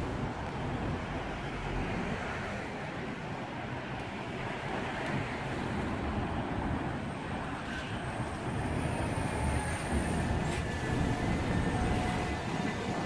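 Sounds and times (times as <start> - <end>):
diesel bus engine rumbling: 0.0 - 13.0.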